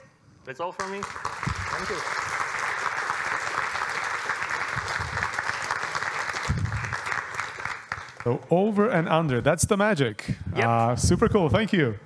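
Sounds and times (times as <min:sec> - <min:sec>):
audience applauding: 0:00.8 - 0:08.4.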